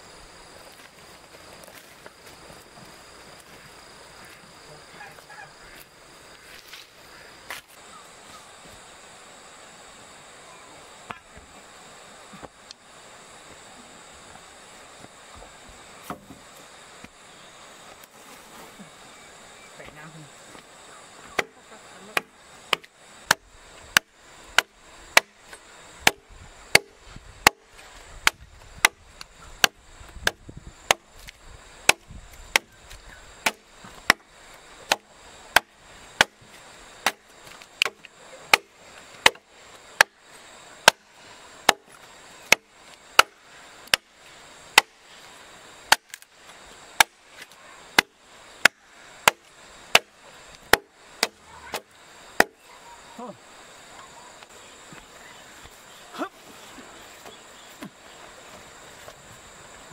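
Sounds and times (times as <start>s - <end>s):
machete chopping wood: 21.3s - 29.0s, 29.6s - 40.2s, 40.8s - 44.1s, 44.7s - 45.0s, 45.9s - 46.3s, 47.0s - 52.6s.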